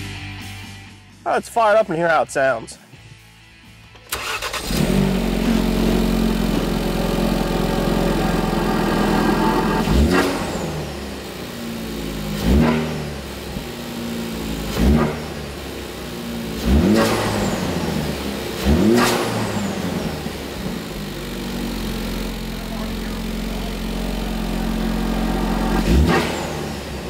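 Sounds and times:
car engine idling and revving: 3.0s - 27.0s.

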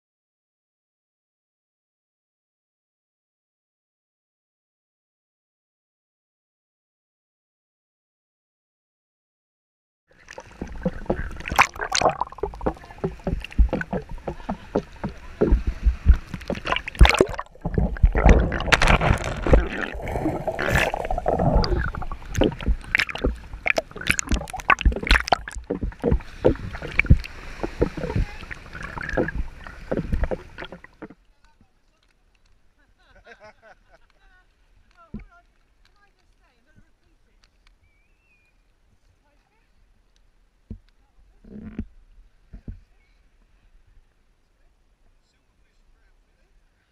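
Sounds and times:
surf sloshing and splashing: 10.2s - 31.2s.

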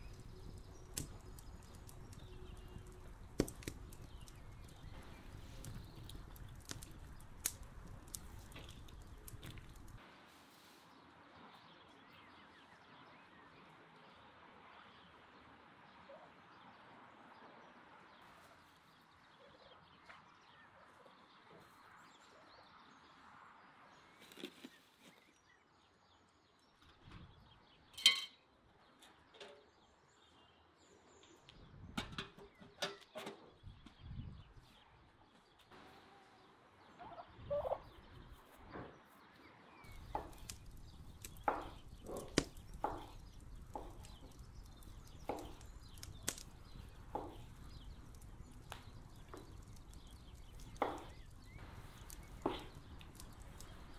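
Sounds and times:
turkeys calling: 37.0s - 38.0s.

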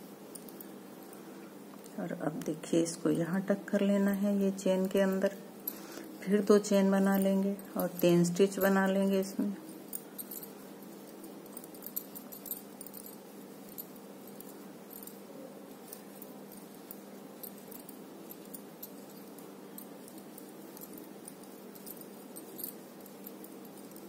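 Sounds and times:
metal bangles jingling: 0.0s - 24.0s
steady low hum: 0.0s - 24.0s.

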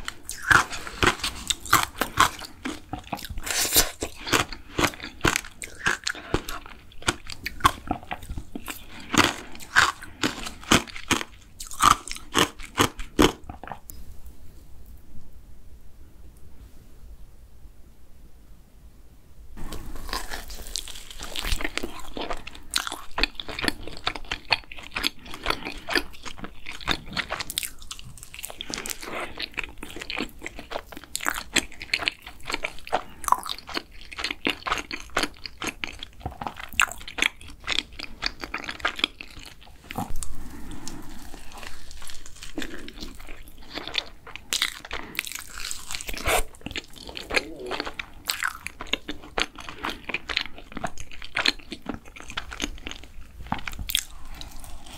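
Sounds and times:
biting and chewing doughnut: 0.0s - 13.9s, 19.6s - 54.9s.

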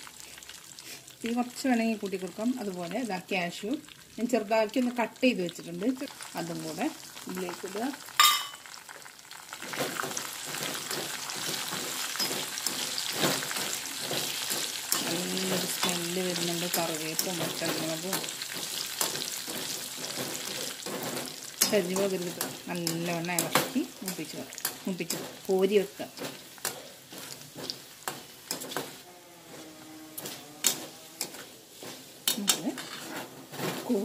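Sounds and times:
nuts frying in hot oil: 0.0s - 34.0s
metal spatula scraping a pan: 9.7s - 34.0s.

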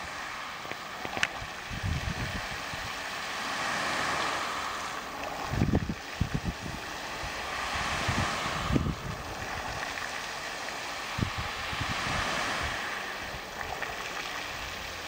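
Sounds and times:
fountain jets spraying onto water: 0.0s - 15.0s
wind buffeting microphone: 0.0s - 15.0s.

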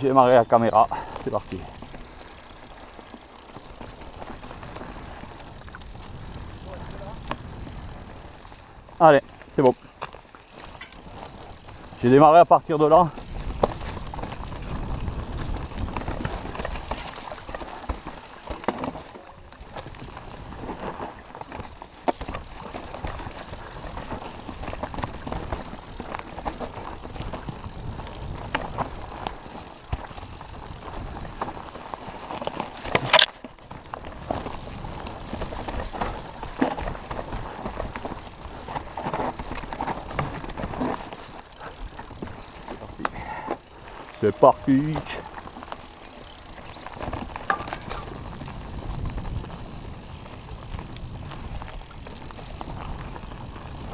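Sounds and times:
bike clattering over bumps: 0.0s - 53.9s
tyres on dirt and stones: 0.0s - 53.9s.

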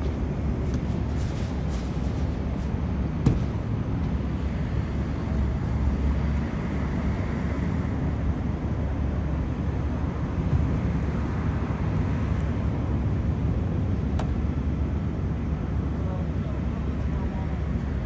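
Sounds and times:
road traffic rumble: 0.0s - 18.0s.

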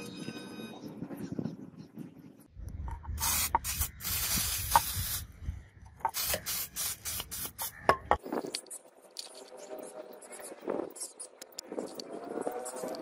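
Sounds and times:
liquid spray hiss: 3.2s - 5.3s, 6.1s - 7.8s
short spray bursts: 3.2s - 5.3s, 6.1s - 7.9s.

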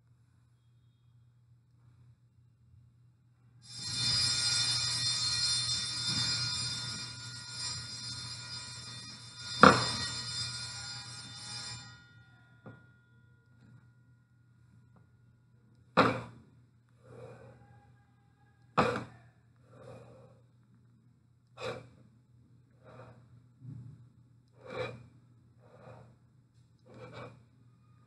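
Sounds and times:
person breathing: 17.0s - 18.0s, 19.6s - 20.5s, 22.8s - 23.8s, 25.6s - 26.2s.

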